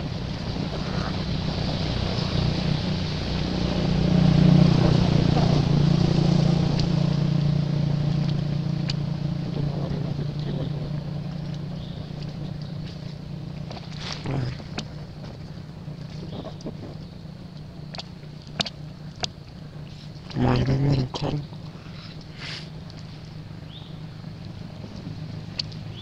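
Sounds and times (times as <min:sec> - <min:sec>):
motor engine humming: 0:00.0 - 0:26.0
faint clicks: 0:24.4 - 0:25.8.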